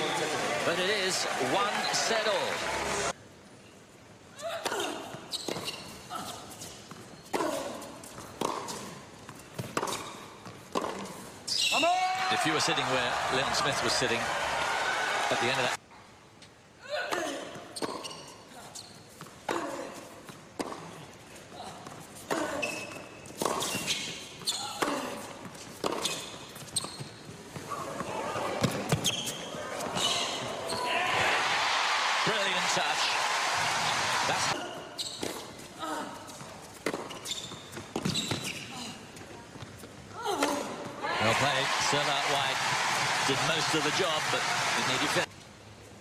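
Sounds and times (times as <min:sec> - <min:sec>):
shoes squeaking on court: 0:05.1 - 0:11.9, 0:17.5 - 0:31.0, 0:34.7 - 0:40.1
tennis ball bouncing: 0:06.9 - 0:11.2, 0:23.3 - 0:27.0, 0:36.3 - 0:38.6.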